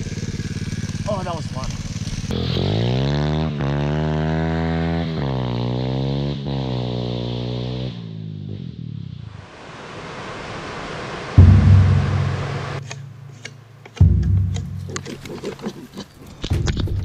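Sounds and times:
dirt bike engine accelerating: 0.0s - 9.0s, 11.4s - 15.4s
falling water rushing: 9.4s - 13.4s
sudden loud low thud: 11.4s - 13.3s, 14.0s - 15.0s.

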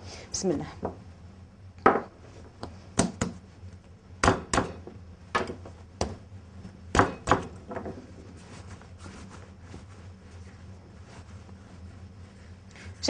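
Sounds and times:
hands slapping bread dough: 2.9s - 3.5s.

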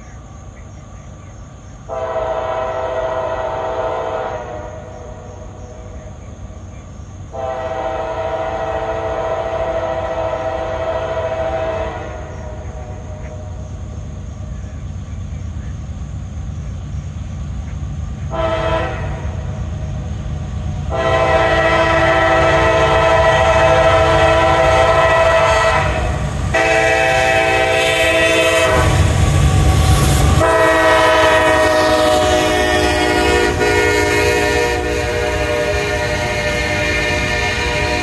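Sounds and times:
locomotive engine rumble: 0.0s - 38.0s
train cars rolling past: 0.0s - 38.0s
train air horn blasts: 1.9s - 5.0s, 7.3s - 13.1s, 18.3s - 19.6s, 20.9s - 38.0s.

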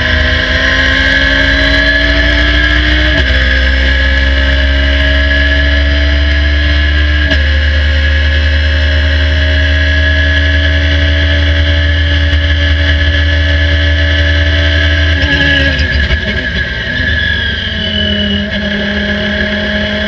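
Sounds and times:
racing car engine at high revs: 0.0s - 20.0s.

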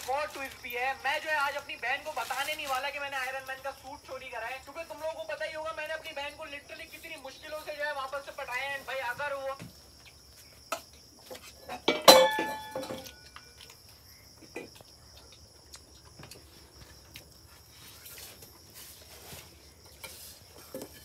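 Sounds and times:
crickets chirring: 0.0s - 21.0s
clinks of eating from plates: 10.7s - 13.7s, 19.8s - 21.0s
steel dish clanging: 11.8s - 13.0s.

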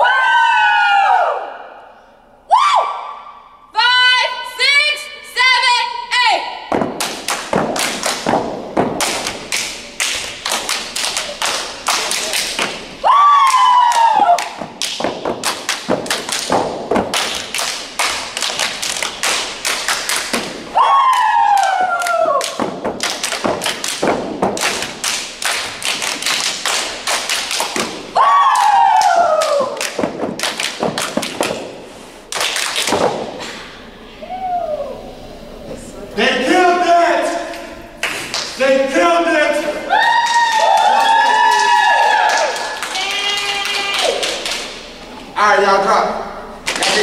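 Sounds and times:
stomps claps and body slaps: 6.7s - 33.7s, 46.6s - 47.0s
group shouting: 13.0s - 14.6s, 20.7s - 22.6s, 28.2s - 29.8s
body slaps: 14.4s - 20.6s, 27.4s - 28.0s, 29.8s - 31.7s.

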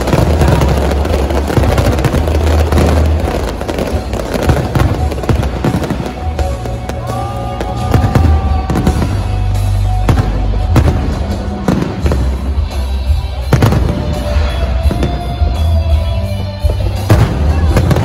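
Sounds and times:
fireworks bangs: 0.0s - 18.0s
music playing: 0.0s - 18.0s.

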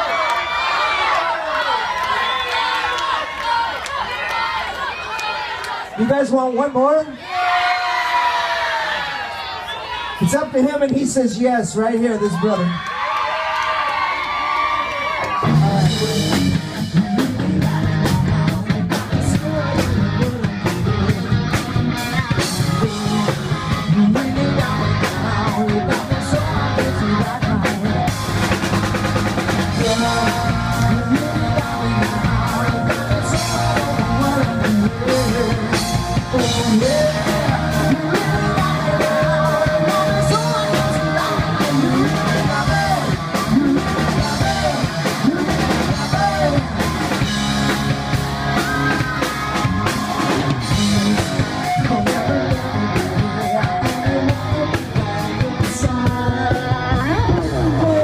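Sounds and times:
guitars: 15.3s - 58.0s
person singing: 15.4s - 28.5s, 29.6s - 58.0s
drum kit beat: 15.4s - 58.0s.

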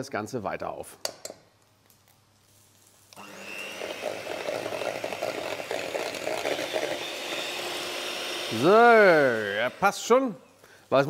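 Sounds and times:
beaters whipping cream in steel bowl: 3.2s - 10.2s
electric hand mixer humming: 3.2s - 10.3s.

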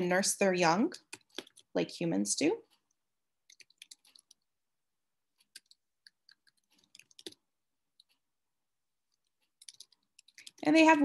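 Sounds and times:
keyboard typing: 0.9s - 1.8s, 2.7s - 4.5s, 5.3s - 8.3s, 9.1s - 11.0s.

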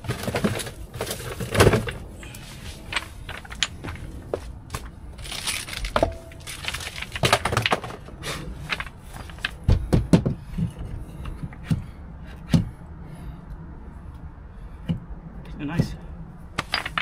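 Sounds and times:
plastic and metal parts knocking: 5.5s - 12.7s.

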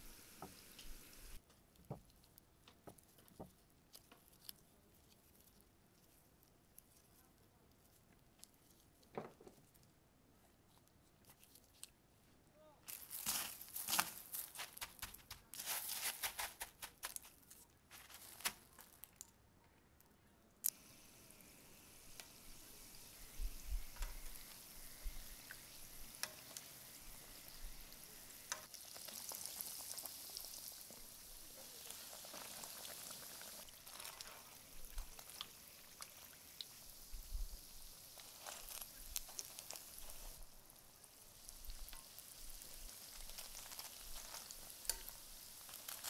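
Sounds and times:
food deep-frying in hot oil: 0.0s - 1.4s, 20.6s - 46.0s
crumbs crunching and crinkling: 12.8s - 19.4s, 28.6s - 35.5s, 37.9s - 46.0s.

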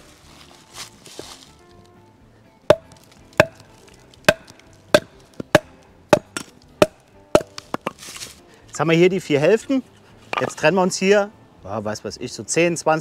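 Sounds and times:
baton knocking on hatchet: 2.7s - 8.0s.

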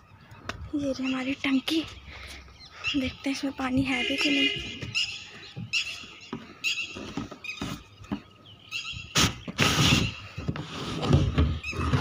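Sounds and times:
plastic lid scraping: 9.5s - 12.0s.

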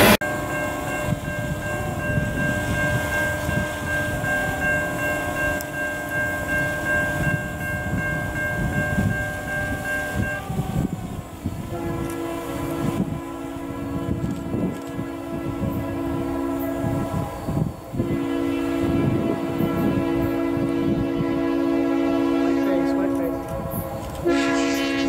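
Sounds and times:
locomotive horn chord: 11.6s - 25.0s.

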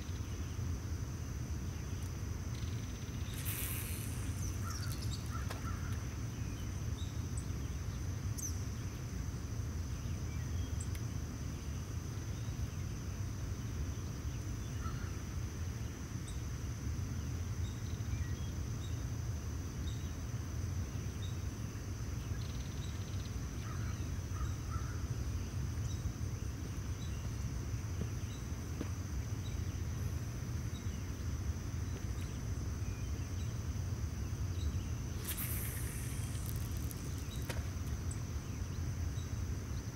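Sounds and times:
high insect drone: 0.0s - 39.9s
faint chirps: 1.7s - 9.0s, 34.5s - 39.9s.

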